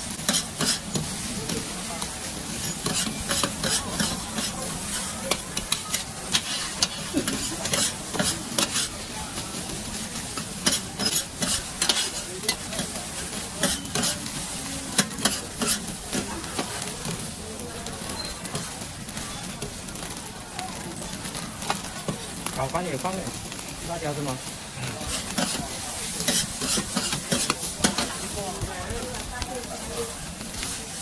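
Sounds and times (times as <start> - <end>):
metal utensil scraping wok: 0.0 - 17.2, 24.4 - 28.6, 29.7 - 31.0
food sizzling in a wok: 0.0 - 31.0
utensil clanking on wok: 0.1 - 17.2, 24.8 - 29.1.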